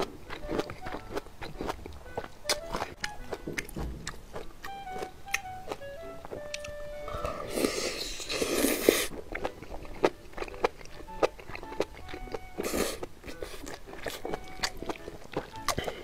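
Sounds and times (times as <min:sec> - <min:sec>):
background music: 0:00.0 - 0:16.0
chewing noodles: 0:00.0 - 0:16.0
wet mouth clicks and smacks: 0:02.4 - 0:05.5, 0:06.4 - 0:06.8
slurp: 0:07.2 - 0:09.1.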